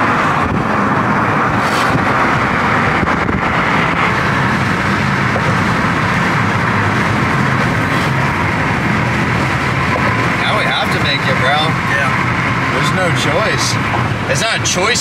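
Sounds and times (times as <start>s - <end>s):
wind rushing: 0.0s - 10.5s.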